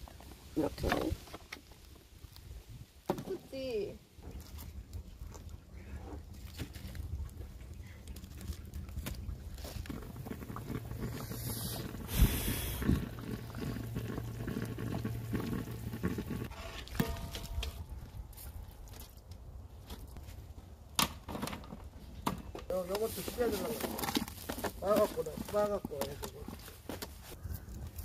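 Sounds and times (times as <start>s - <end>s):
broth boiling in a cauldron: 0.0s - 19.4s.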